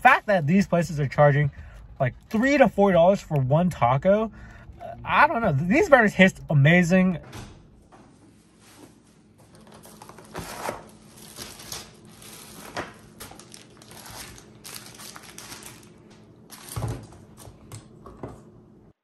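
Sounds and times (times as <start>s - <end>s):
paper bags rustling: 8.5s - 17.1s.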